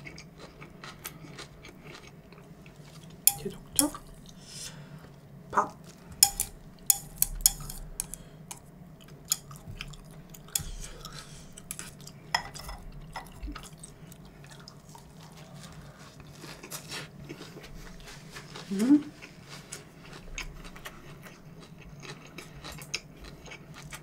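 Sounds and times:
chewing and mouth sounds: 0.0s - 4.4s, 5.8s - 12.2s, 12.8s - 24.0s
chopsticks clicking on ceramic bowl: 3.3s - 4.1s, 6.2s - 8.6s, 9.3s - 9.6s.

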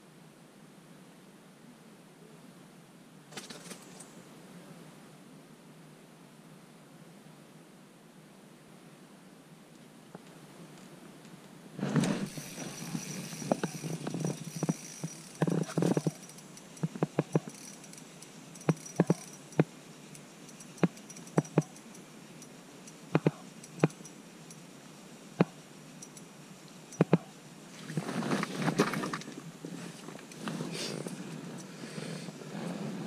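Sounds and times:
rustling handling noise: 27.7s - 31.7s.

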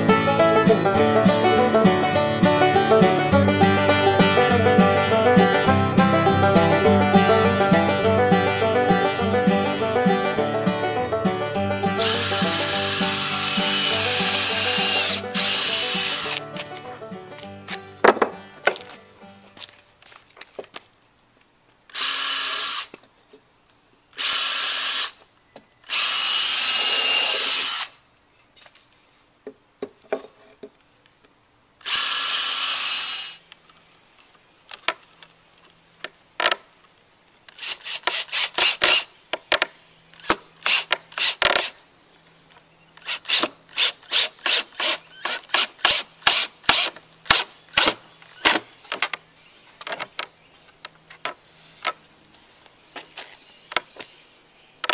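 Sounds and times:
cordless drill driving screws: 12.0s - 16.4s, 21.9s - 23.0s, 24.2s - 25.2s, 25.8s - 28.0s, 31.8s - 33.4s, 37.5s - 39.1s, 40.2s - 41.8s, 43.0s - 48.6s.

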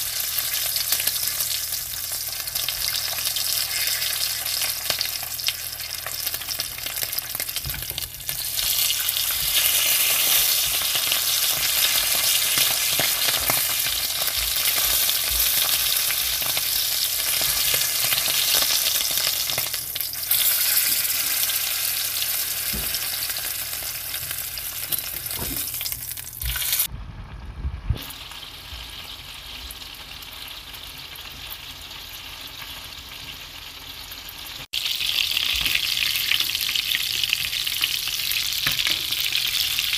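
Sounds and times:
steak sizzling in a pan: 0.0s - 26.9s.

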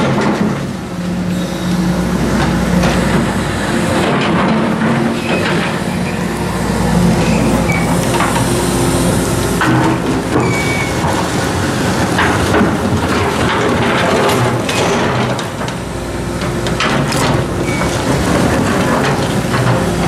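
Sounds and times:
excavator diesel engine: 0.0s - 20.0s
short high squeals: 5.2s - 9.6s, 10.4s - 11.0s.

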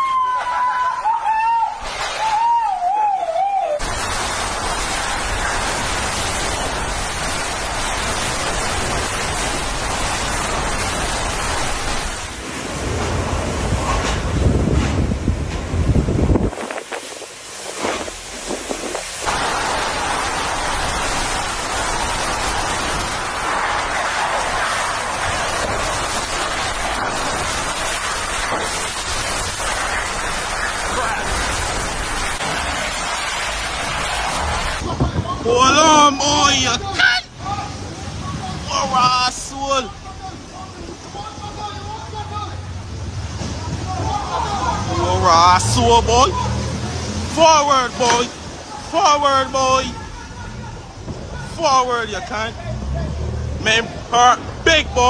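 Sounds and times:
high wavering wind whistle: 0.0s - 3.8s
wind-driven rain rushing: 0.0s - 55.0s
wind buffeting microphone: 12.7s - 19.4s.

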